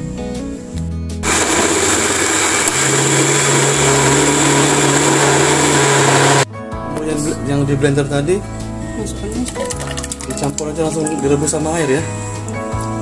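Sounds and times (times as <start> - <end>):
electric blender running: 1.2 - 6.5.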